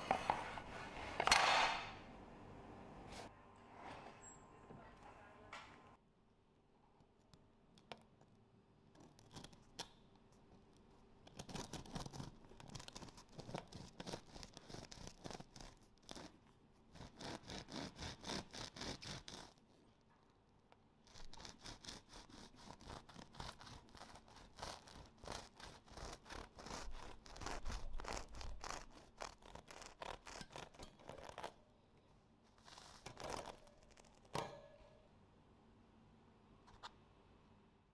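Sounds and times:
bread knife sawing through bread: 0:11.4 - 0:16.3, 0:16.9 - 0:19.6, 0:21.1 - 0:31.5.

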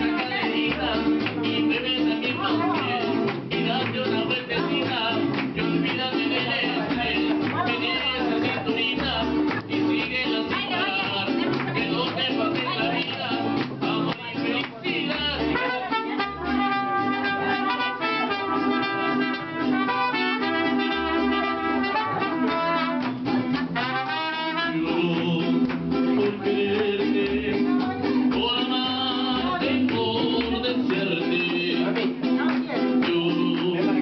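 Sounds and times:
guitar: 0:00.0 - 0:34.0
trumpet melody: 0:15.5 - 0:25.2.

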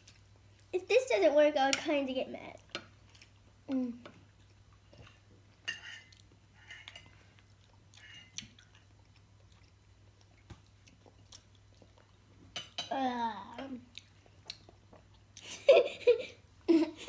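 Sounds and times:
faint chewing: 0:02.6 - 0:12.5, 0:13.8 - 0:15.6.

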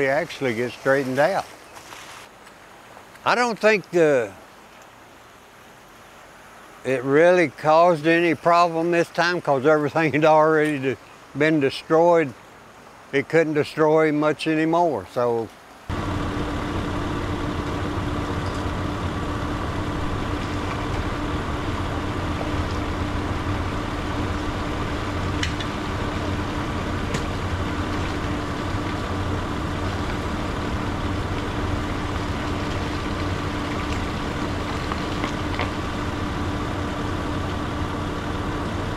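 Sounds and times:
motor running: 0:15.9 - 0:38.9.

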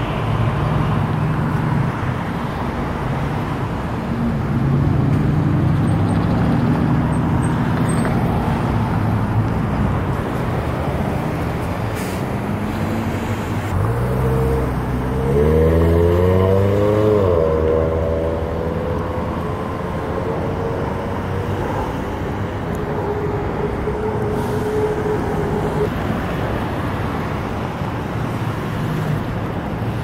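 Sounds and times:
road traffic passing: 0:00.0 - 0:30.0
vehicle engine accelerating: 0:12.4 - 0:25.9.

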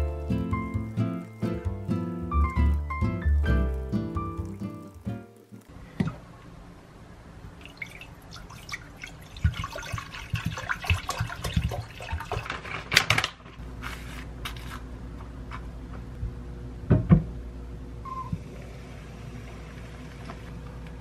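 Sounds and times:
water pouring into a saucepan: 0:07.6 - 0:12.6
steady low hum: 0:13.6 - 0:21.0.

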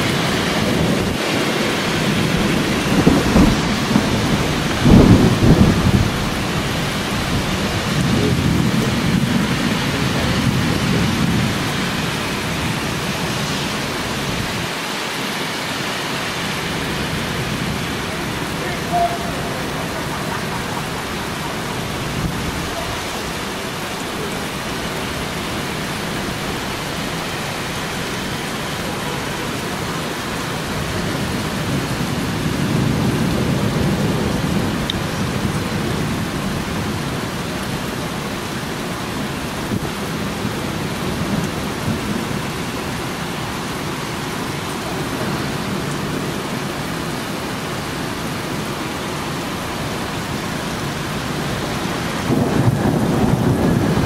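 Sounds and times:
heavy rain on rooftops: 0:00.0 - 0:54.0
low roll of thunder: 0:00.4 - 0:14.6, 0:29.3 - 0:37.3, 0:52.1 - 0:54.0.

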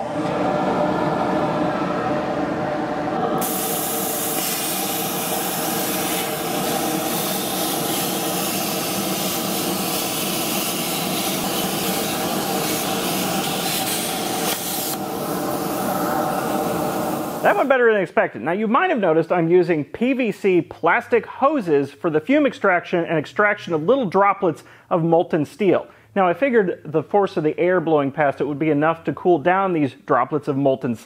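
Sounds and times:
dust collector motor hum: 0:00.0 - 0:17.7
plasma cutter hiss: 0:03.4 - 0:15.7.

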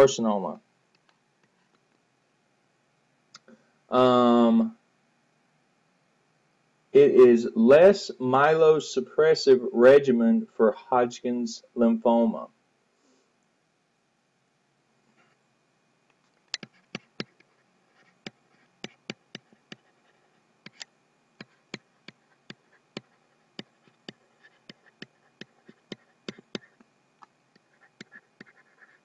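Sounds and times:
stylus tapping on tablet: 0:16.5 - 0:19.9, 0:20.7 - 0:26.9, 0:27.6 - 0:28.9.

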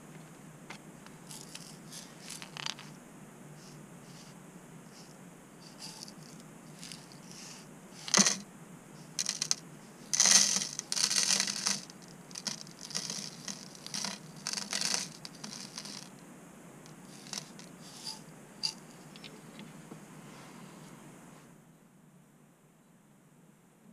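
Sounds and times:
gold flakes pouring rattling hiss: 0:01.2 - 0:02.9, 0:04.9 - 0:08.4, 0:09.0 - 0:16.1, 0:16.9 - 0:18.8.

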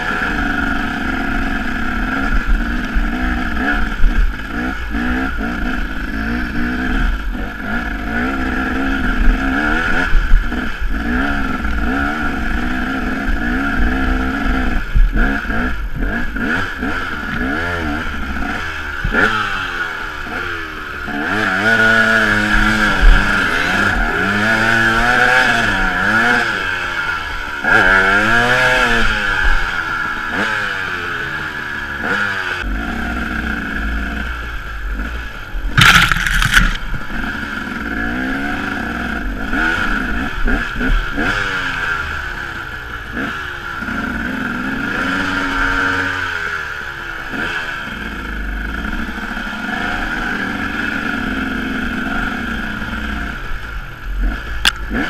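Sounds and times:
dirt bike engine revving: 0:00.0 - 0:55.0
wind and brush noise: 0:35.0 - 0:37.4
loud clatter: 0:35.7 - 0:37.0.

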